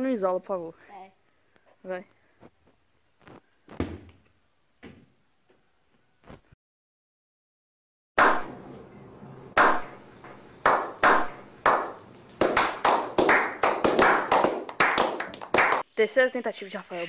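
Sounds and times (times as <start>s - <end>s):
hands clapping: 8.2s - 8.5s, 9.6s - 9.9s, 10.6s - 15.8s.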